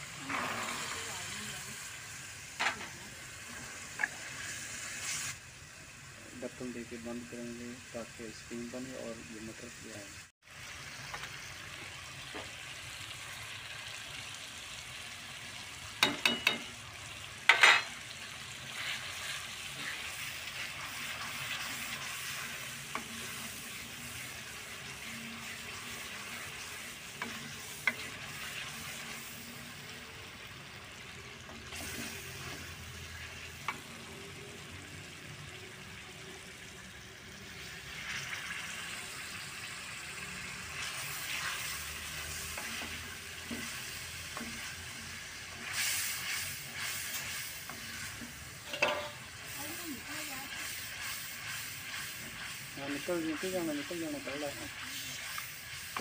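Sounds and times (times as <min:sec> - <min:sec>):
onions sizzling in oil: 0:00.0 - 0:56.0
spoon stirring in pot: 0:25.0 - 0:28.9.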